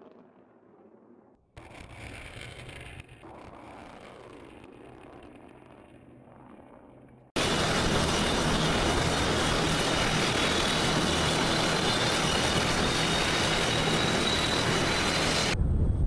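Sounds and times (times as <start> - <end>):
high turbine whine: 0.0 - 16.0
turboprop engines roaring: 3.3 - 15.9.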